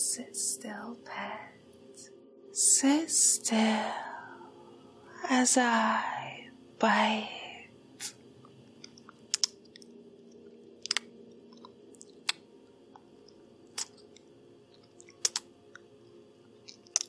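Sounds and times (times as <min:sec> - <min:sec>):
mouth smacking and sucking clicks: 0:08.8 - 0:15.9.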